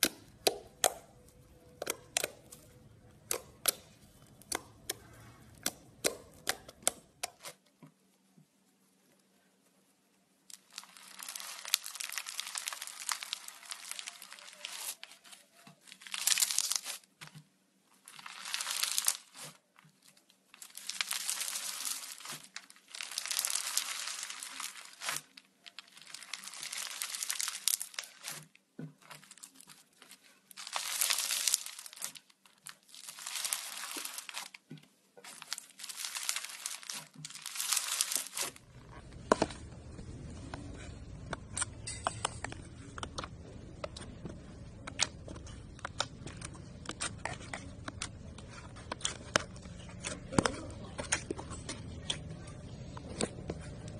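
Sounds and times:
slime with foam beads crunching: 0:10.5 - 0:17.2, 0:18.0 - 0:53.9.

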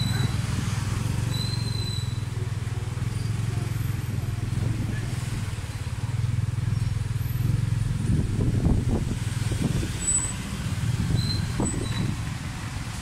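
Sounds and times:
motorcycle engine running: 0:00.0 - 0:09.6.

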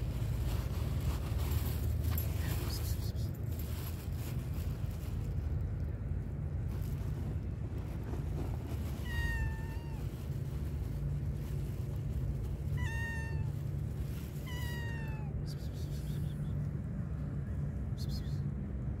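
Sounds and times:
low rumble: 0:00.0 - 0:19.0
cat meowing: 0:08.8 - 0:10.3, 0:12.6 - 0:15.5.

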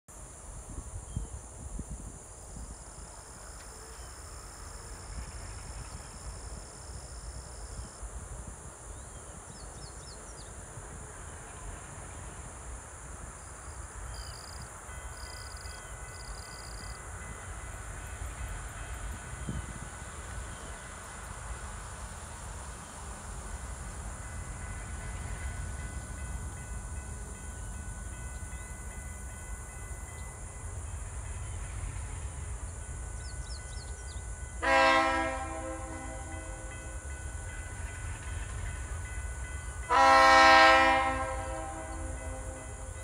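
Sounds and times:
wind rumbling on microphone: 0:00.2 - 0:03.5, 0:17.2 - 0:22.8
faint steady tones: 0:08.8 - 0:43.0.

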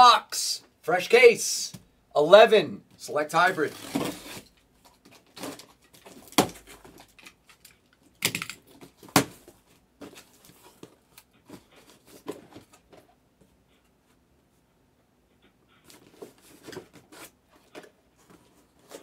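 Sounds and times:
handling knocks and clicks: 0:04.8 - 0:13.1.

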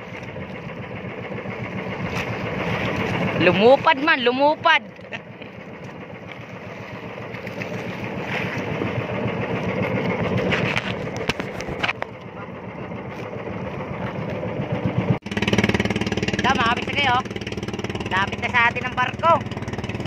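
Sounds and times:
wind and water rushing: 0:00.0 - 0:05.1, 0:05.8 - 0:11.8
small boat engine running: 0:00.0 - 0:20.0.

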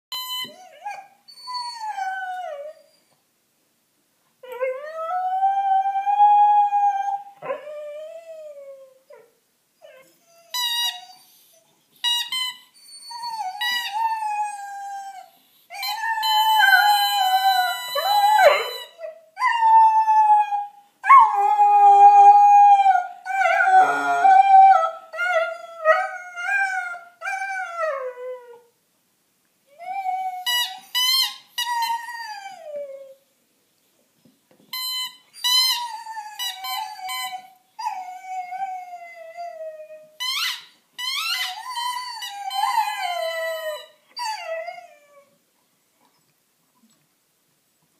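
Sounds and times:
puppy howling: 0:19.8 - 0:27.0.

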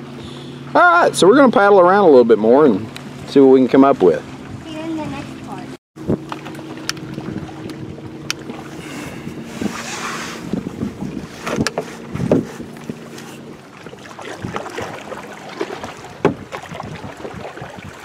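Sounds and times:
paddle splashing in water: 0:02.6 - 0:18.0
wind buffeting microphone: 0:04.3 - 0:18.0.

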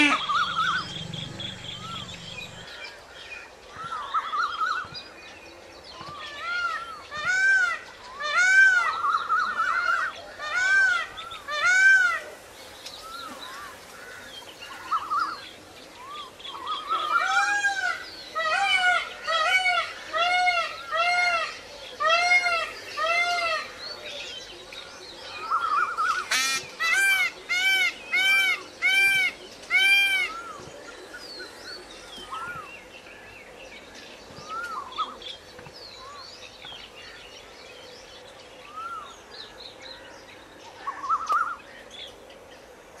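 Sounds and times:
harsh rasping bird note: 0:00.0 - 0:02.7
peacock calling: 0:00.0 - 0:03.2, 0:25.4 - 0:32.7.

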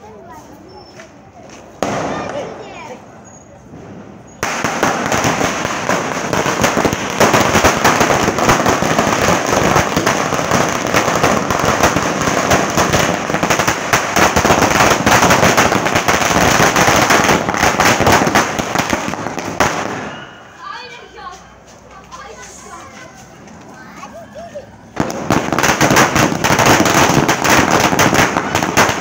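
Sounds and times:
firecracker string going off: 0:01.6 - 0:20.6, 0:24.9 - 0:29.0.

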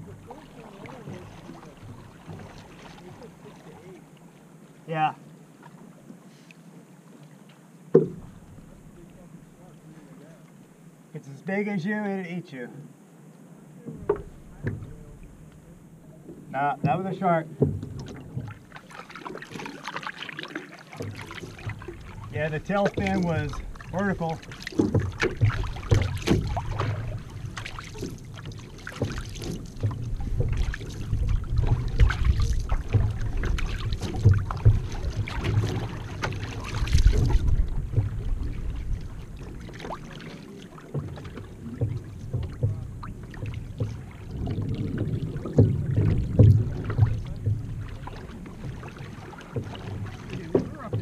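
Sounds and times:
water splashing against hull: 0:00.0 - 0:11.1, 0:13.7 - 0:51.0
paddle strokes: 0:00.0 - 0:11.8, 0:13.3 - 0:51.0
steady low rumble: 0:13.9 - 0:16.6, 0:29.8 - 0:40.0.

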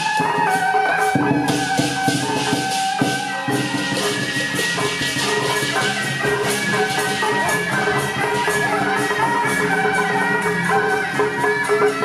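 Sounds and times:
jangling metal percussion: 0:00.0 - 0:12.0
pitched melody: 0:00.0 - 0:12.0.

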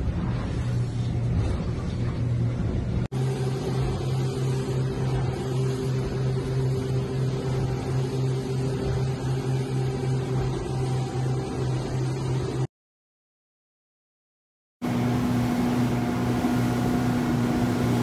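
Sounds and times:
outboard motors droning: 0:00.0 - 0:12.7, 0:14.8 - 0:18.0
wind: 0:00.0 - 0:12.7, 0:14.8 - 0:18.0
wake water rushing: 0:14.8 - 0:18.0.

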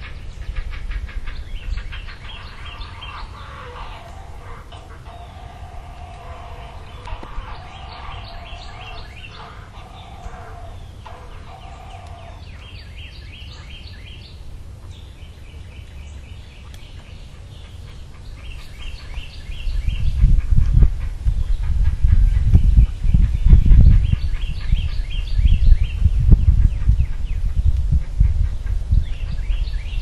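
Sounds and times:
loud low rumble: 0:00.0 - 0:12.8
lower bird call: 0:00.0 - 0:30.0
high bird chirps: 0:01.6 - 0:14.2.

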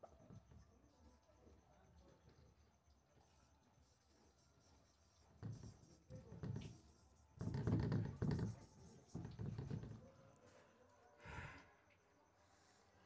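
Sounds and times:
marker scraping on whiteboard: 0:03.2 - 0:09.9.

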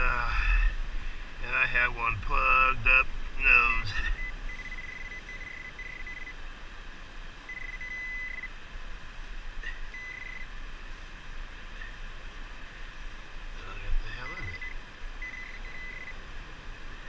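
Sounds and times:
high electronic tone of metal detector: 0:03.9 - 0:06.4, 0:07.5 - 0:08.5, 0:09.6 - 0:10.5, 0:14.2 - 0:16.2.

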